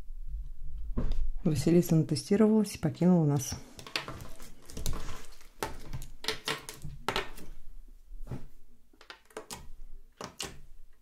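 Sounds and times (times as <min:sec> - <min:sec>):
nails tapping plastic tub: 0:03.4 - 0:07.5.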